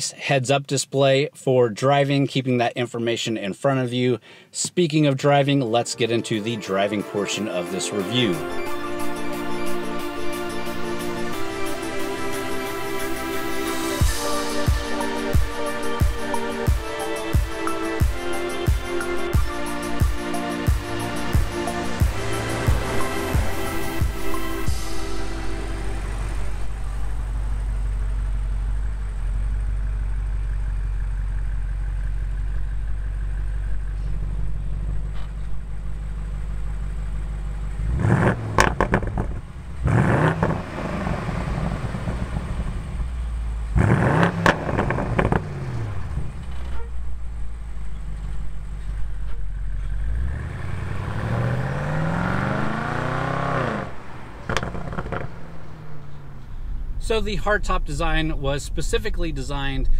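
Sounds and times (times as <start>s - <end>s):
car engine rumbling and revving: 7.8s - 59.9s
sharp exhaust pops: 26.9s - 50.2s, 54.4s - 56.3s.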